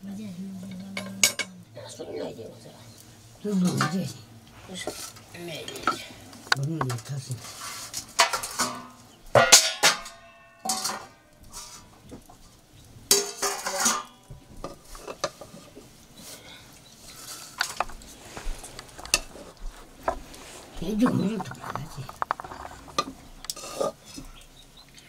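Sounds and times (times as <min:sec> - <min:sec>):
ladle and metal dishes clinking: 0:00.7 - 0:01.6, 0:03.5 - 0:04.2, 0:08.1 - 0:11.9, 0:13.1 - 0:15.7, 0:20.9 - 0:24.4
metal clattering: 0:04.8 - 0:12.4, 0:13.1 - 0:15.7.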